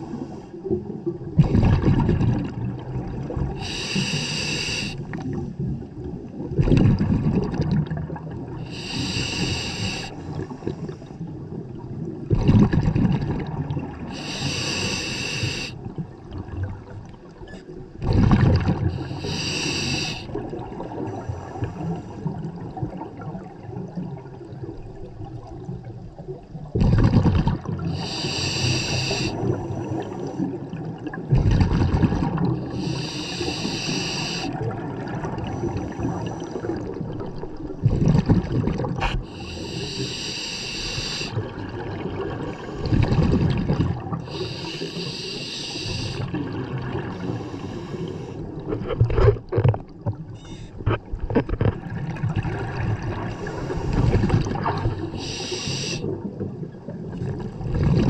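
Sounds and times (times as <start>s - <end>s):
exhaled bubbles rumbling: 0.0s - 4.2s, 4.9s - 14.4s, 15.8s - 19.4s, 20.1s - 33.7s, 34.4s - 40.2s, 40.9s - 45.0s, 45.9s - 58.0s
regulator hissing inhale: 3.6s - 5.1s, 8.7s - 11.0s, 14.1s - 15.8s, 19.0s - 20.4s, 27.9s - 30.5s, 32.6s - 34.6s, 35.4s - 36.8s, 39.0s - 41.4s, 44.3s - 46.4s, 47.1s - 48.5s, 53.3s - 54.3s, 55.0s - 56.1s.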